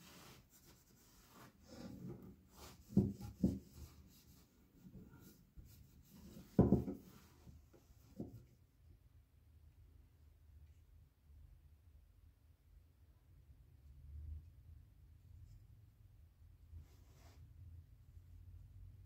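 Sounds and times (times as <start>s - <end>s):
metal knocking on wooden bench: 6.6s - 7.0s.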